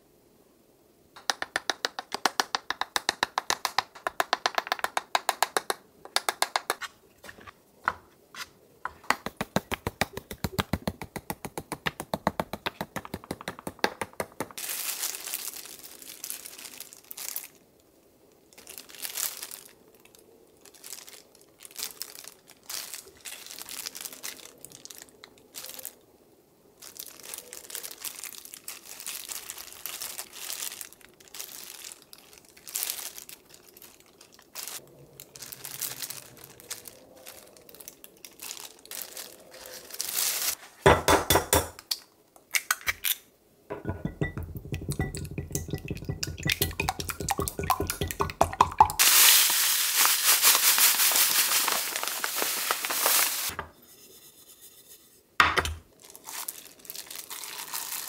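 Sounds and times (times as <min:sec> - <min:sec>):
wooden spoon scraping: 0:08.3 - 0:09.0, 0:52.3 - 0:55.3
plastic gloves crinkling: 0:11.8 - 0:26.1, 0:26.7 - 0:40.9, 0:43.8 - 0:53.6, 0:55.8 - 0:58.0
tapping on mesh strainer: 0:43.7 - 0:49.0.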